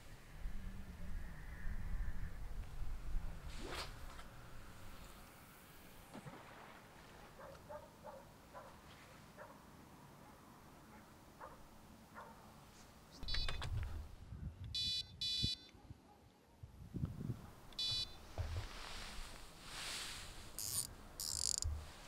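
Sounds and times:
electronic bite alarm beeping: 13.2 - 13.6, 14.8 - 15.7, 17.8 - 18.2, 20.6 - 21.7.

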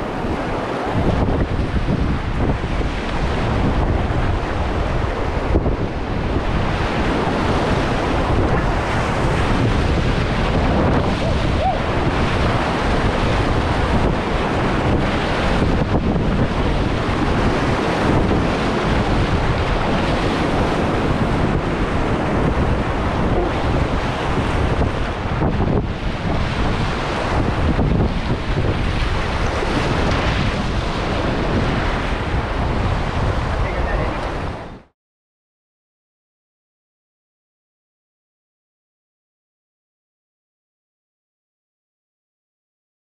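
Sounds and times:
whitewater rapid rushing: 0.0 - 2.5, 3.1 - 34.6
waves splashing against boat: 0.0 - 34.9
wind buffeting microphone: 0.0 - 34.9.

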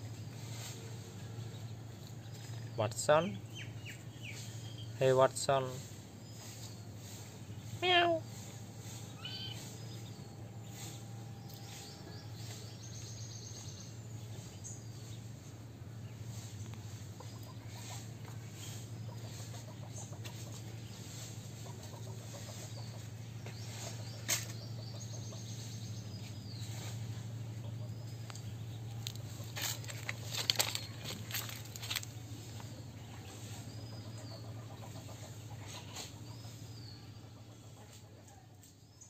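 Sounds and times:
small birds chirping: 0.0 - 39.0
steady low hum: 0.0 - 39.0
chickens clucking: 13.5 - 38.8.

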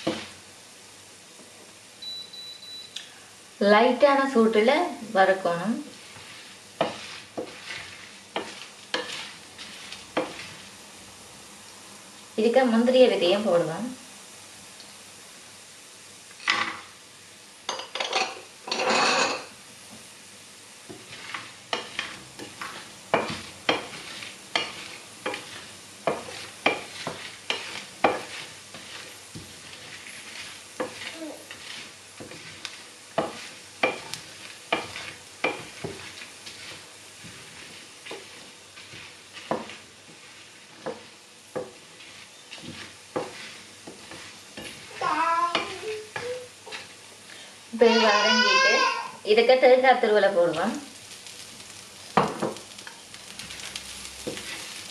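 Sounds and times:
wooden spatula scraping a pan: 0.0 - 0.4, 4.1 - 10.9, 17.7 - 20.1, 20.8 - 47.1, 47.8 - 54.9
oil sizzling faintly: 0.0 - 54.9.

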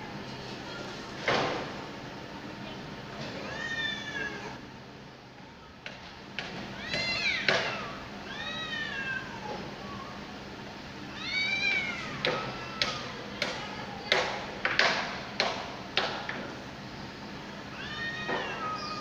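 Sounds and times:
cat yowling: 3.4 - 4.6, 6.8 - 10.2, 11.1 - 14.1, 17.7 - 19.0.

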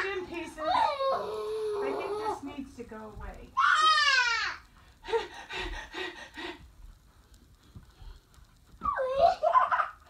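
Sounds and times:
child whining: 0.6 - 2.4, 3.6 - 4.7, 8.8 - 9.6.

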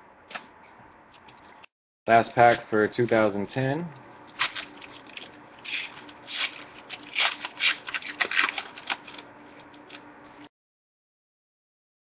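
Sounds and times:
foil wrapper crinkling and tearing: 4.3 - 10.0.

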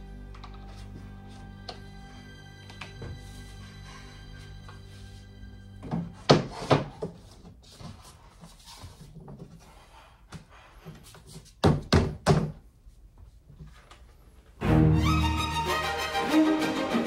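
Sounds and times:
cabinet panels knocking: 11.6 - 12.6.

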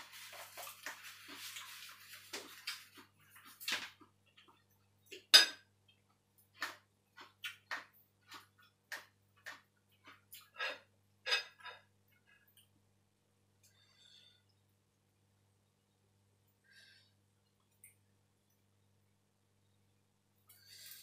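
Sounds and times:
kitchen utensils and dishes clinking: 5.2 - 5.7, 10.4 - 11.9.

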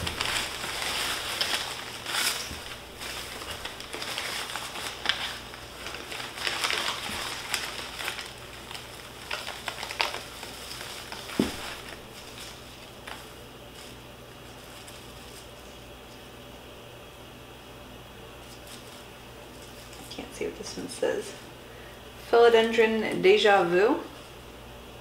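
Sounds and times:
paper packing rustling: 0.0 - 16.2, 18.4 - 20.7.

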